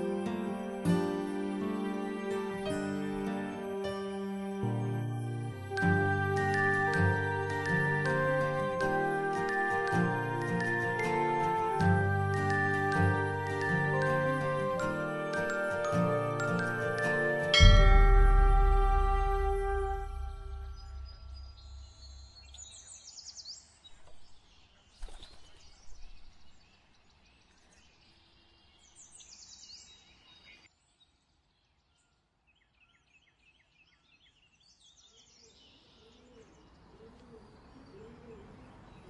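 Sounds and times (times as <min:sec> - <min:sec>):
birds chirping: 0:31.8 - 0:39.0.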